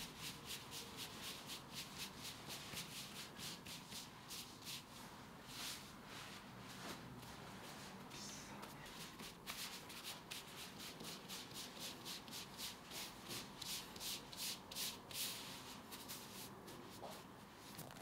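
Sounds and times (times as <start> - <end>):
hands brushing dough: 0.0 - 17.7.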